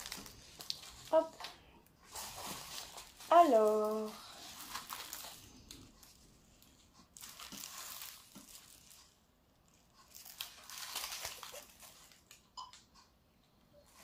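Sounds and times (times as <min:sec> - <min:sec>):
plastic packaging crinkling: 0:00.0 - 0:12.8.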